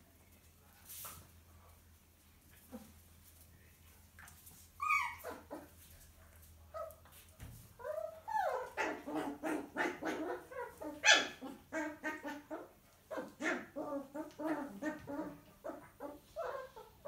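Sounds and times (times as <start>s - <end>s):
dogs yelping and barking: 4.8s - 5.7s, 7.8s - 17.0s.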